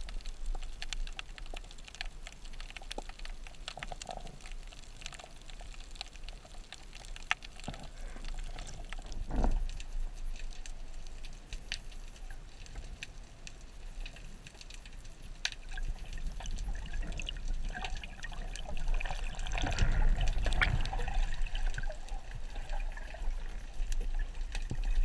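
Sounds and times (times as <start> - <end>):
underwater clicks and crackles: 0.0 - 25.0
water swish: 5.8 - 25.0.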